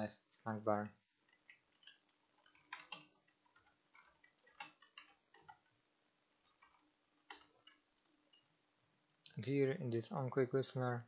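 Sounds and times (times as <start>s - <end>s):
faint steady hum: 0.0s - 11.0s
computer keyboard typing: 1.2s - 5.7s, 6.5s - 8.4s.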